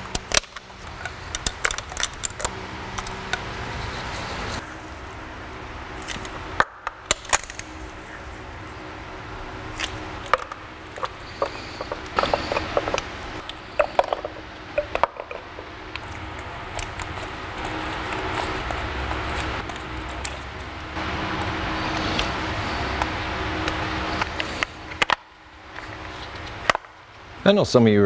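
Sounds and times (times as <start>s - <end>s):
metal tools clicking and tapping: 0.0s - 3.4s, 9.8s - 16.2s.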